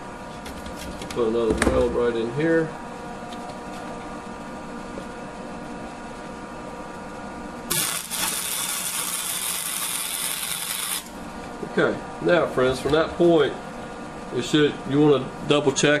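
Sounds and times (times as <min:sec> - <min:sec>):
welder humming: 0:07.2 - 0:11.7
welding arc crackling hiss: 0:07.7 - 0:11.2.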